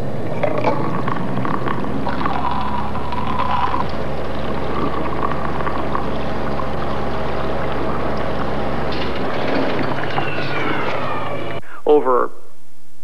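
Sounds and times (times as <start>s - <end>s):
wavering tone: 0.0s - 11.6s
steady low hum: 0.0s - 13.0s.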